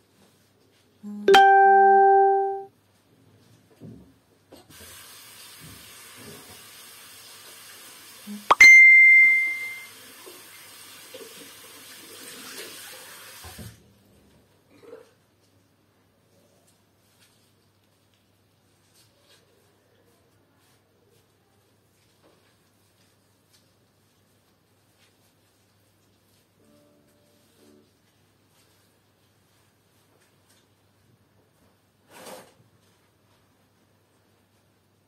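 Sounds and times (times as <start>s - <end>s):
electronic ringing chime: 1.1s - 2.7s, 8.5s - 9.9s
short high beep: 8.3s - 9.9s.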